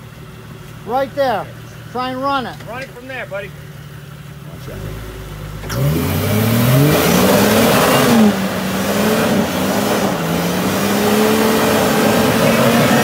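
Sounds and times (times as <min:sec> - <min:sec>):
engine revving hard: 0:04.6 - 0:13.0.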